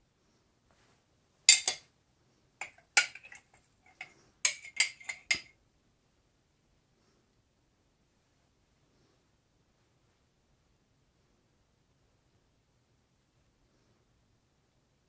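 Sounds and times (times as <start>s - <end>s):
spoon clinking against glass jar: 1.5s - 1.8s, 2.6s - 5.5s
spoon tapping on ceramic plate: 1.5s - 1.8s, 2.6s - 5.5s.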